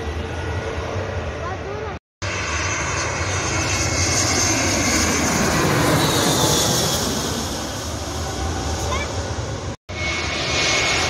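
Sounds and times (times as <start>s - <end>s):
jet airliner flying overhead: 0.0s - 11.0s.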